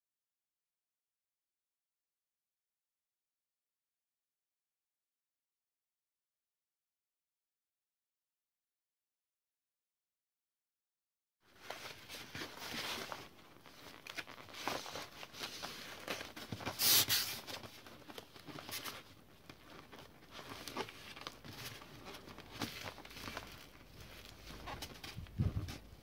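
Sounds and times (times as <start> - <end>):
plastic foil rustling and crinkling: 11.5 - 26.0.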